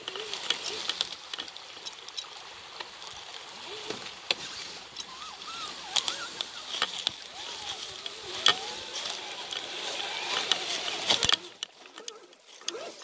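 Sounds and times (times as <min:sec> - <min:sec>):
dry leaves rustling and crackling: 0:00.0 - 0:13.0.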